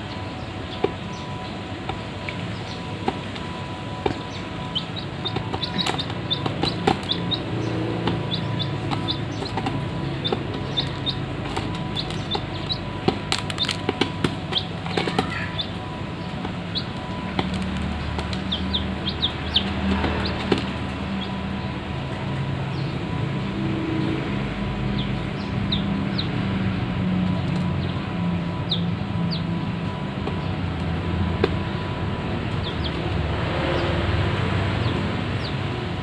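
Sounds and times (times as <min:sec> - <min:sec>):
chicks peeping: 0:00.0 - 0:23.0, 0:24.9 - 0:26.4, 0:28.6 - 0:29.7, 0:32.4 - 0:36.0
steady low hum: 0:00.0 - 0:36.0
beaks pecking on metal basin: 0:01.8 - 0:21.4.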